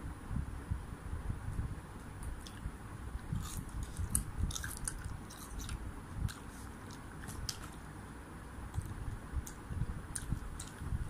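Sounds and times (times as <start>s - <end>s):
person chewing: 3.3s - 7.8s, 8.7s - 10.9s
wet mouth clicks and smacks: 8.7s - 10.8s.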